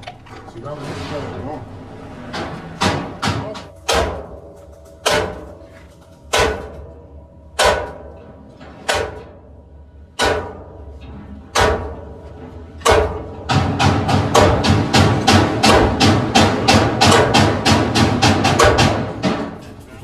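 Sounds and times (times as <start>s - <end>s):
hammer striking metal pulley: 2.3s - 4.4s, 5.0s - 5.6s, 7.6s - 9.4s, 12.8s - 19.6s.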